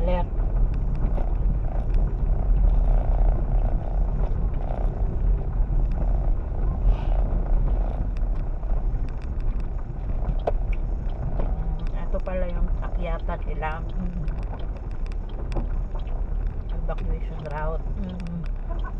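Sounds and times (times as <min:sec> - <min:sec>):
car driving on dirt road: 0:00.0 - 0:18.9
small clicks and rattles: 0:00.1 - 0:18.9.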